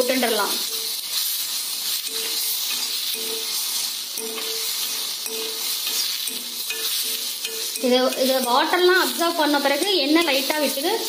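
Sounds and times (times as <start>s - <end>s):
metal turner scraping a pan: 0.0s - 11.0s
tomatoes sizzling in a pan: 0.0s - 11.0s.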